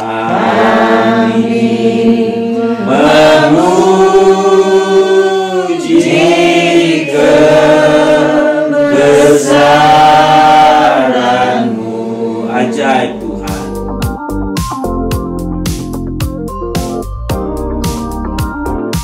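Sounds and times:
group singing a hymn: 0:00.0 - 0:13.8.

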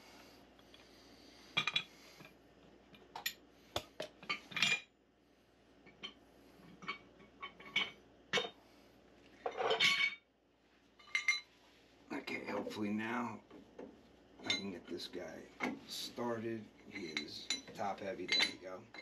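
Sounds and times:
metal pipes clinking together: 0:09.5 - 0:10.2, 0:14.4 - 0:14.8, 0:16.9 - 0:19.0
metal pipe fittings rattling: 0:16.9 - 0:19.0.

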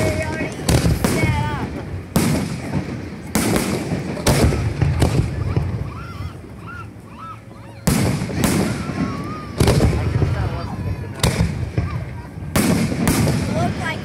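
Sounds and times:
fireworks booming: 0:00.0 - 0:07.0, 0:07.7 - 0:14.0.

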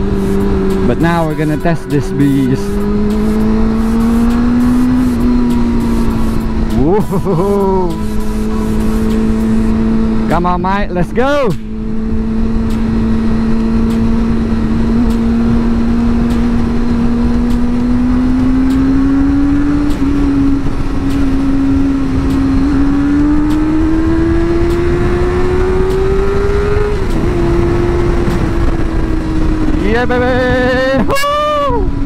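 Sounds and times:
motorcycle engine accelerating: 0:00.0 - 0:32.0
wind noise: 0:11.7 - 0:32.0.

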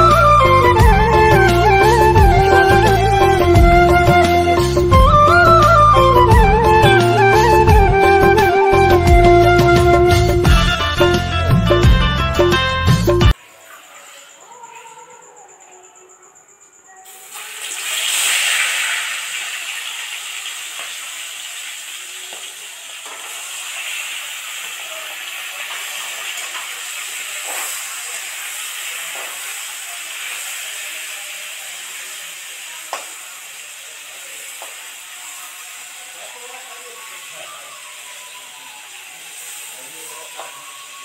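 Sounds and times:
fish sizzling in hot oil: 0:17.1 - 0:41.0.

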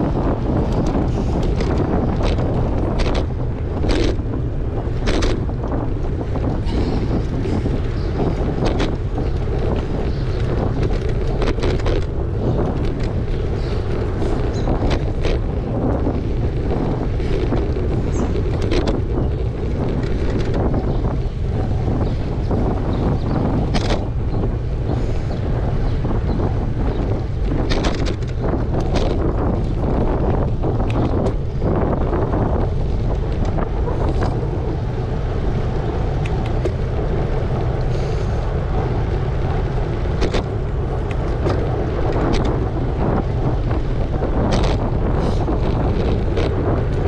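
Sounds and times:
wind buffeting microphone: 0:00.0 - 0:47.0
sharp clicks and knocks: 0:00.6 - 0:04.2, 0:04.9 - 0:05.7, 0:23.6 - 0:24.1, 0:27.4 - 0:30.1, 0:40.2 - 0:42.6, 0:44.4 - 0:44.9.

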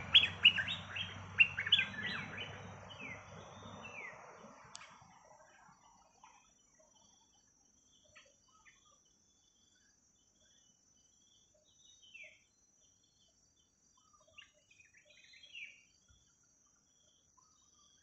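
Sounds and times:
bird chirps and calls: 0:00.0 - 0:05.0.

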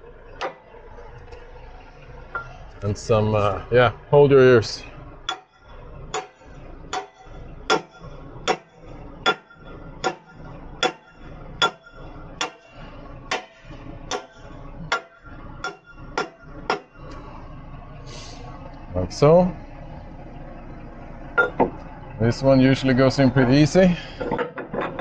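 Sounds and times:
hammer striking steel: 0:05.3 - 0:12.7, 0:13.3 - 0:17.0.

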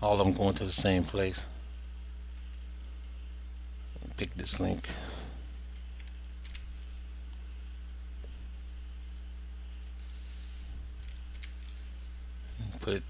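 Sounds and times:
steady low hum: 0:00.0 - 0:13.0
computer mouse and keyboard clicks: 0:05.7 - 0:06.7, 0:11.0 - 0:11.8.

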